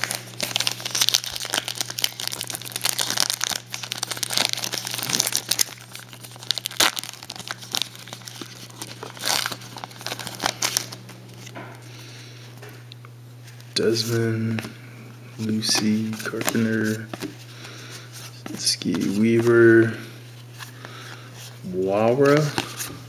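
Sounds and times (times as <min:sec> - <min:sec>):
wrapper tearing and crinkling: 0:00.0 - 0:11.5.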